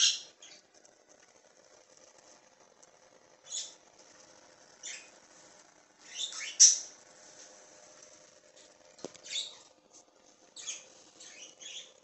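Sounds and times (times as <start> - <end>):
budgerigars chirping: 10.6 - 11.9.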